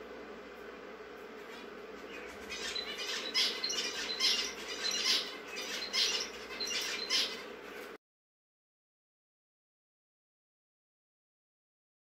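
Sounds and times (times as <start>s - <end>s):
finches calling: 1.5s - 7.6s.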